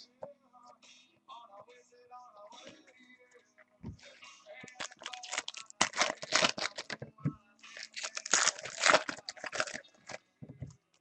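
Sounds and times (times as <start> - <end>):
foil wrapper tearing and crinkling: 4.7 - 7.0, 7.8 - 10.2.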